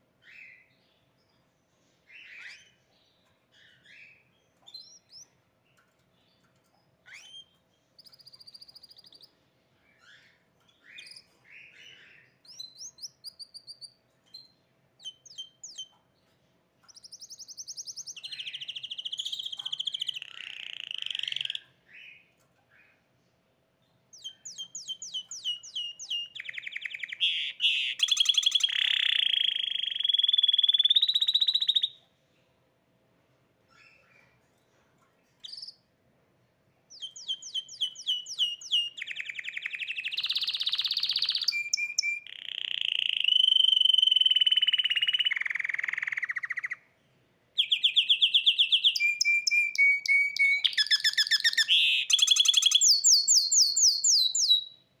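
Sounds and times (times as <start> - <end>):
canary chirps and whistles: 0.2 - 0.9, 2.1 - 2.8, 3.5 - 5.4, 7.0 - 16.0, 16.8 - 23.0, 24.1 - 32.0, 35.4 - 35.8, 36.9 - 46.8, 47.6 - 54.9.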